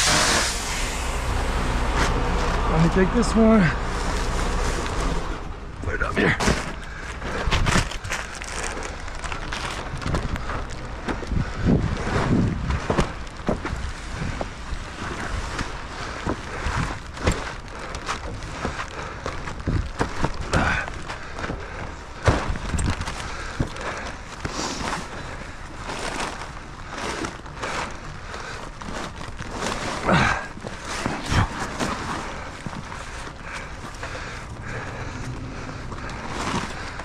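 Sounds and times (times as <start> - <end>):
plastic tarp rustling and flapping: 0.0 - 5.6, 6.3 - 37.0
rain: 0.0 - 6.0
wind on microphone: 9.8 - 15.6.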